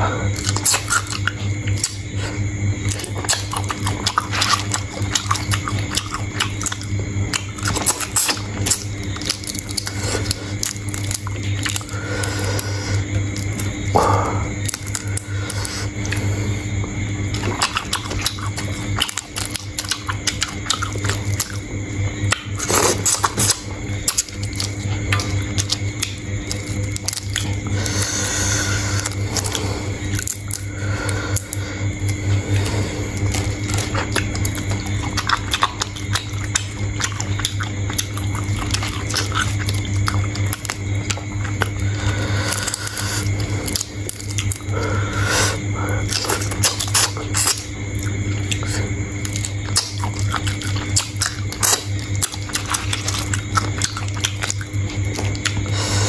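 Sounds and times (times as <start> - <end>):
person chewing: 0.0 - 56.0
steady low hum: 0.0 - 56.0
shrimp shells crunching: 7.5 - 12.7, 22.6 - 28.0.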